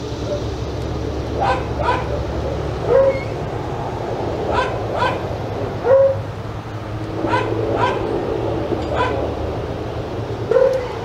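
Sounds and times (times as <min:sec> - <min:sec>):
dog barking: 0:01.4 - 0:03.3, 0:04.5 - 0:06.2, 0:07.2 - 0:08.1, 0:08.9 - 0:09.2, 0:10.5 - 0:11.0.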